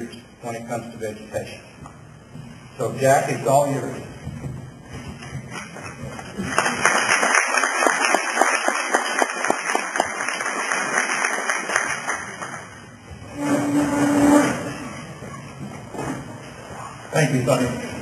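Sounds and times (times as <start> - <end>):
audience applauding: 6.2 - 12.9.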